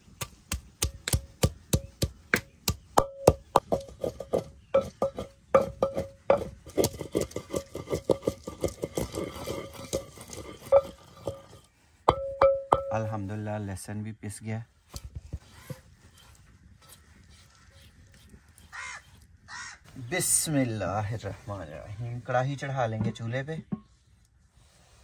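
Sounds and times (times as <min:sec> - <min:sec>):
pestle pounding in a clay mortar: 0:00.0 - 0:11.5, 0:12.1 - 0:13.0.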